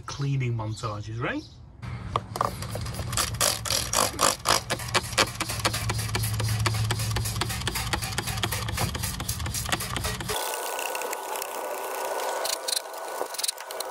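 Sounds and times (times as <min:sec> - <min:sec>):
pressure washer running: 0:02.5 - 0:13.9
spray jet blasting: 0:02.9 - 0:10.9.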